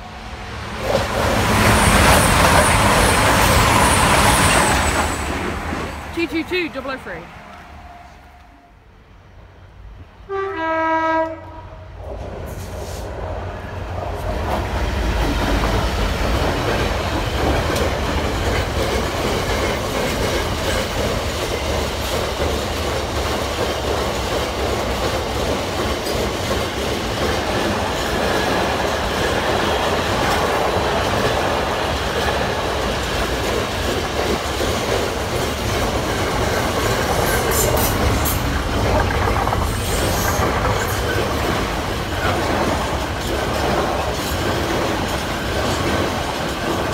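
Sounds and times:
train rumbling and clattering past: 0:00.0 - 0:46.9
two-tone locomotive horn: 0:10.2 - 0:11.9.

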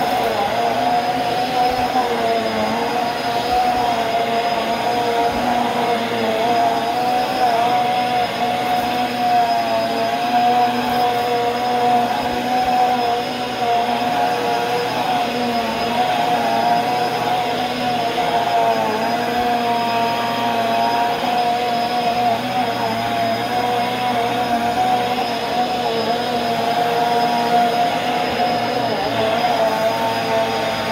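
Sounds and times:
vacuum cleaner running on carpet: 0:00.0 - 0:30.9.

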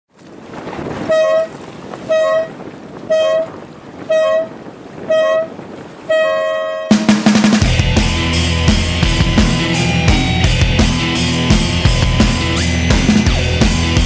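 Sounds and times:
wind on microphone: 0:00.1 - 0:07.0
air horn blasts: 0:01.0 - 0:07.1.

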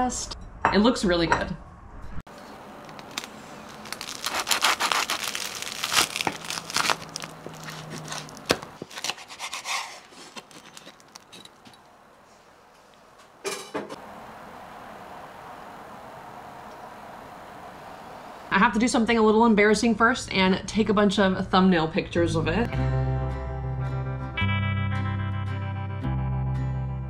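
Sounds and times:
knife sawing through toasted bread: 0:04.1 - 0:05.3, 0:07.6 - 0:10.8.

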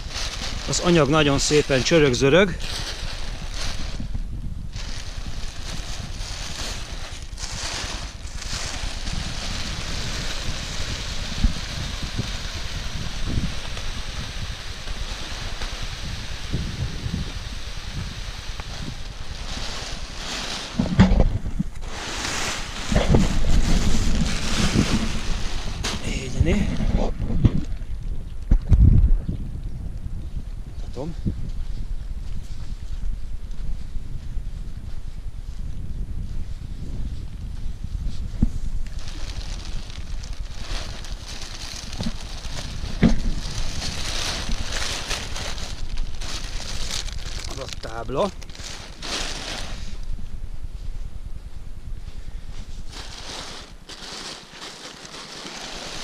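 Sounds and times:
wind buffeting microphone: 0:00.0 - 0:54.0
nylon fabric rustling: 0:04.7 - 0:12.0, 0:18.0 - 0:21.0, 0:21.8 - 0:26.4, 0:38.9 - 0:50.0, 0:52.8 - 0:56.0.

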